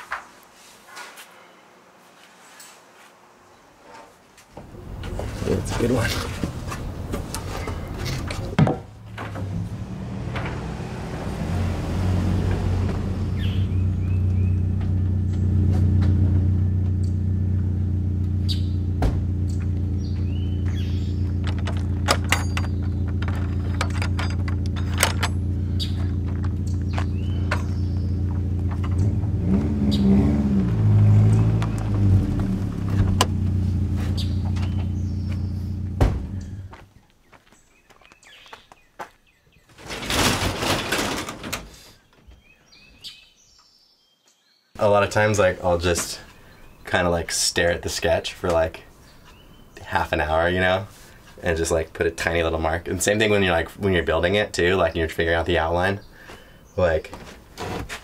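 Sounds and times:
truck engine idling: 0:04.6 - 0:29.6, 0:30.8 - 0:36.8
birds chirping: 0:04.6 - 0:40.0, 0:41.7 - 0:57.6
garage door rattling: 0:21.4 - 0:25.4, 0:39.8 - 0:41.8.

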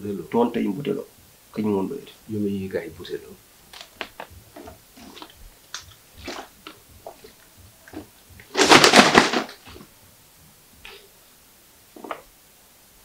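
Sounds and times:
plastic bottle crackling: 0:03.7 - 0:09.9.

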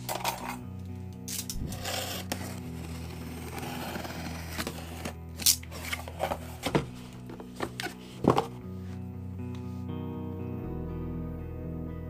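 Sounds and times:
quiet background music: 0:00.0 - 0:12.0
cardboard box being opened: 0:01.6 - 0:08.6.

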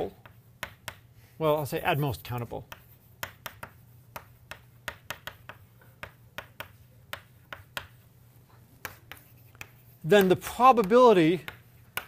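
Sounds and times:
chalk tapping on blackboard: 0:00.0 - 0:12.0.

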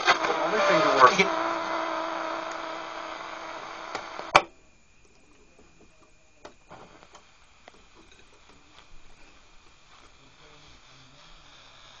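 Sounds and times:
sharp radio click: 0:00.0 - 0:04.5
radio tone over hiss: 0:00.0 - 0:12.0
thin high whine: 0:00.0 - 0:12.0.

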